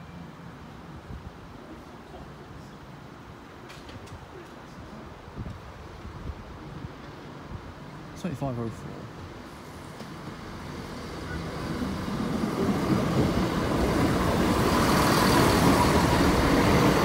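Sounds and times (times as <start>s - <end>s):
diesel train passing: 8.7s - 17.0s.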